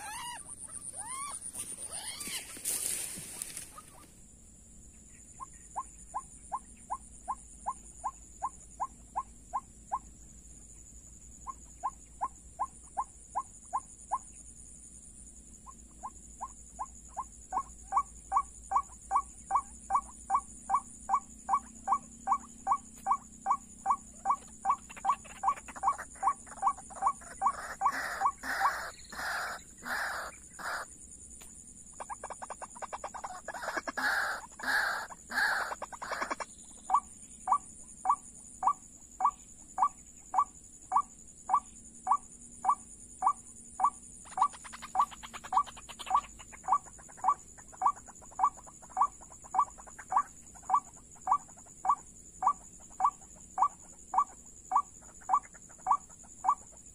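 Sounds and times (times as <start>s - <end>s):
harsh bird calls: 0.0s - 4.1s, 21.5s - 30.9s, 32.0s - 37.6s.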